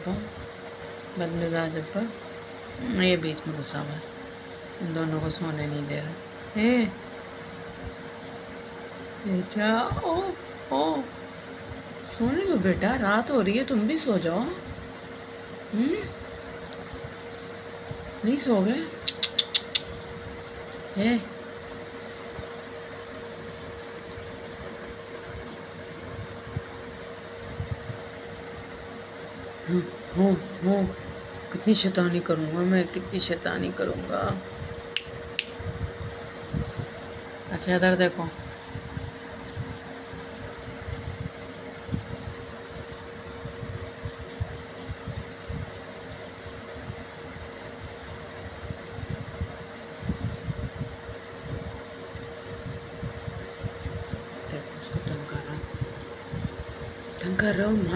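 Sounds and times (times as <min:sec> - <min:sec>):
constant hiss: 0:00.0 - 0:57.9
steady mechanical hum: 0:00.0 - 0:57.9.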